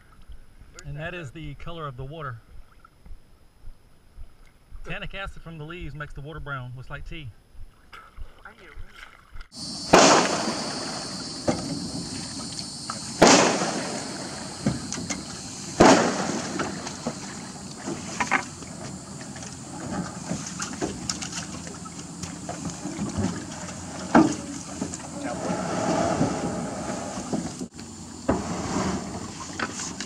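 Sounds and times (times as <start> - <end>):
loud thumps and knocks: 11.4 - 12.3.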